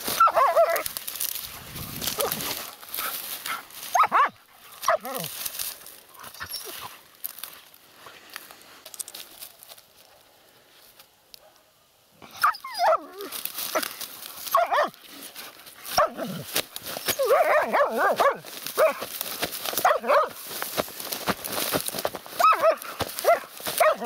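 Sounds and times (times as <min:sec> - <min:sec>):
dry reeds crackling underfoot: 0:00.0 - 0:24.0
dogs yelping barks: 0:00.1 - 0:00.9, 0:02.1 - 0:05.3, 0:12.3 - 0:13.9, 0:14.5 - 0:15.0, 0:15.9 - 0:19.1, 0:19.8 - 0:20.4, 0:22.4 - 0:24.0.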